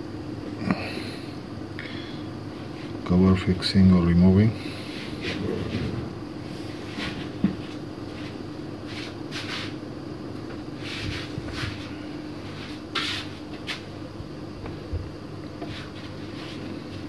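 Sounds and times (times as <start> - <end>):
steady low hum: 0.0 - 17.0
scrapes and rustles: 5.0 - 6.2.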